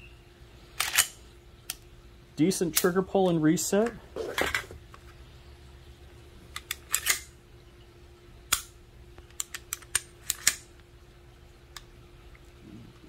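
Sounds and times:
loud pistol snap: 0:08.5 - 0:08.8
pistol trigger clicks: 0:08.5 - 0:10.7.

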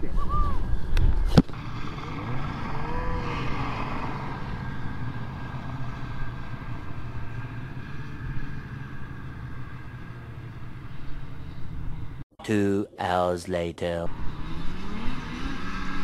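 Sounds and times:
snowmobile engines rumbling: 0:00.0 - 0:13.3
snowmobile passing: 0:01.5 - 0:12.2, 0:14.1 - 0:16.0.

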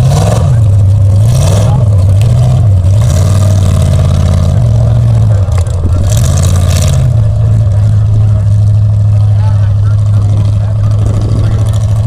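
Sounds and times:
truck engine revving: 0:00.0 - 0:12.0.

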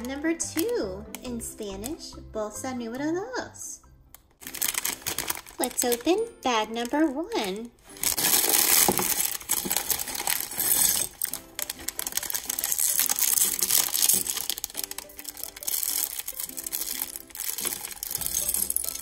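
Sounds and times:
soft background music: 0:00.0 - 0:19.0
plastic bag crinkling: 0:04.4 - 0:19.0.

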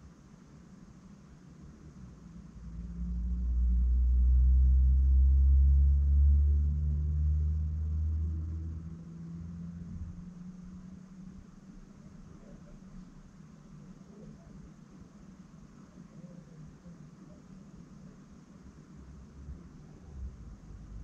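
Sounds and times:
vehicle passing low rumble: 0:01.6 - 0:14.5, 0:18.8 - 0:21.0.

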